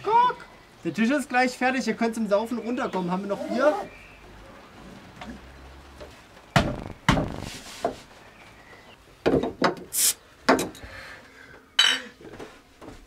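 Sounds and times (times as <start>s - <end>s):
bottle cap hiss: 9.9s - 10.2s.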